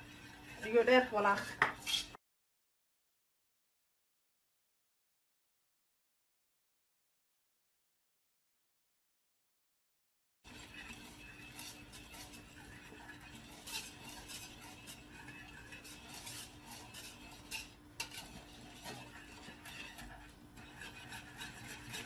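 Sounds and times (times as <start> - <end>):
whisk swishing in pot: 0.0 - 2.2, 10.4 - 22.0.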